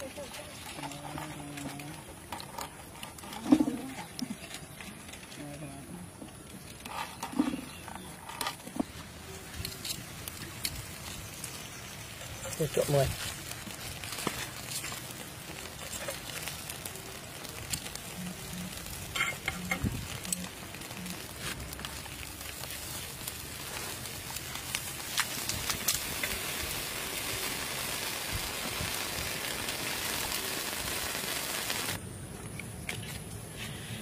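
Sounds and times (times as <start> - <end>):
charcoal crackles: 0.0 - 34.0
food sizzling on grill: 8.8 - 32.0.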